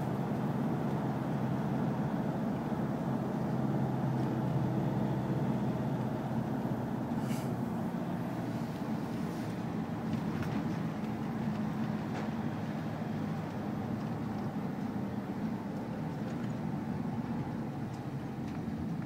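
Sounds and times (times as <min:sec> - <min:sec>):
car road and engine noise: 0:00.0 - 0:19.0
brief hiss: 0:07.2 - 0:07.6.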